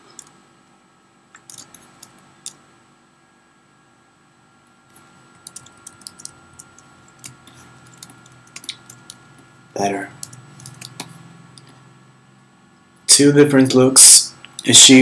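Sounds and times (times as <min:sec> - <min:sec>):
keyboard keys clicking: 0:01.4 - 0:02.6, 0:05.4 - 0:09.2, 0:10.2 - 0:11.7.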